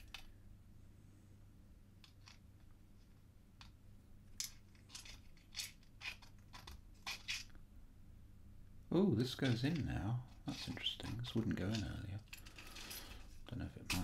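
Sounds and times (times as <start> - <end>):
plastic peg clicking and scraping: 3.6 - 7.6.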